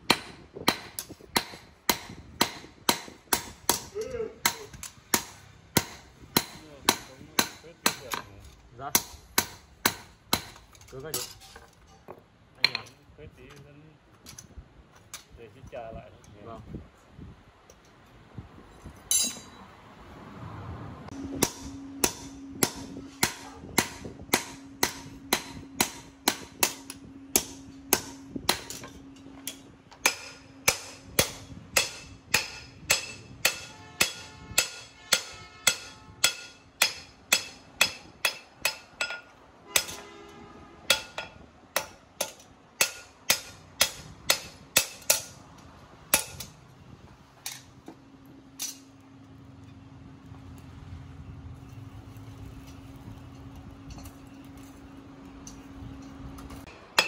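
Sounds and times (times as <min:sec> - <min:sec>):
hammer striking steel on anvil: 0:00.0 - 0:12.0, 0:19.1 - 0:19.6, 0:21.1 - 0:45.4, 0:46.1 - 0:46.6, 0:55.4 - 0:57.0.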